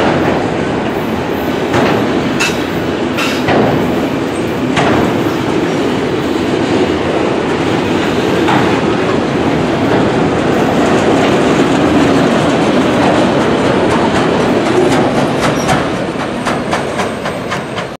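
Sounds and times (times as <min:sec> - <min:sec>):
steel wheels rumbling on rail: 0:00.0 - 0:17.9.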